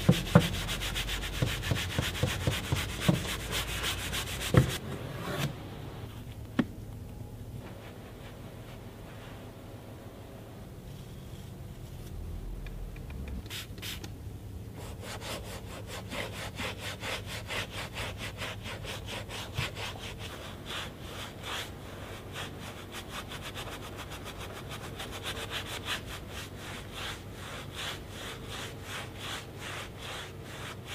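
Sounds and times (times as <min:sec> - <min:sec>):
brush scrubbing plastic trim: 0:00.0 - 0:04.8, 0:17.4 - 0:30.9.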